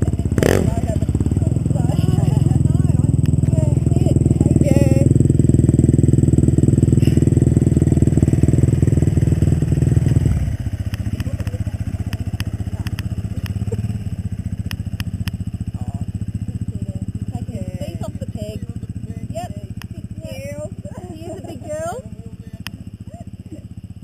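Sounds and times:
dirt bike engine running: 0.0 - 24.0
faint clicks: 10.8 - 13.7, 14.6 - 15.5.

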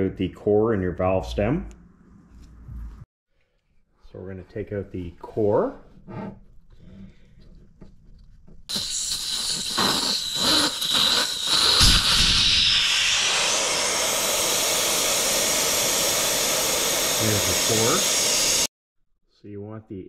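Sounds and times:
air hissing from tire valve: 8.7 - 18.7.

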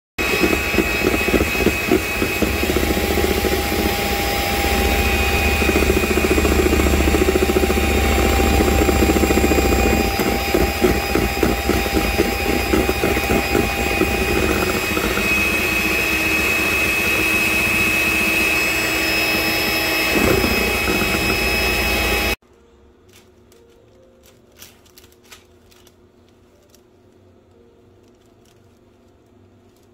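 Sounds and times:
electric mixer whisking cream: 0.2 - 22.4
mixer motor hum: 0.2 - 22.4.

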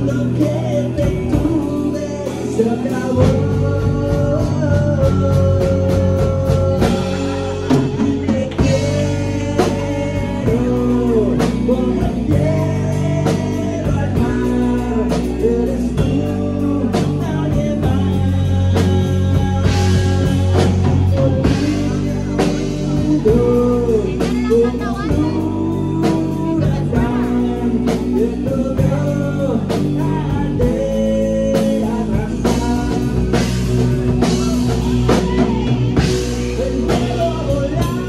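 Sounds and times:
live rock band playing: 0.0 - 38.0.

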